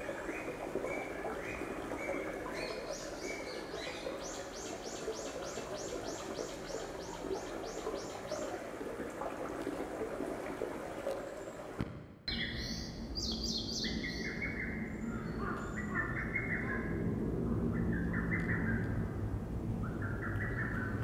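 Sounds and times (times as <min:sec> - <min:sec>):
birds singing: 0:00.0 - 0:08.7, 0:12.3 - 0:17.0, 0:19.8 - 0:21.0
stream murmuring: 0:00.0 - 0:11.8.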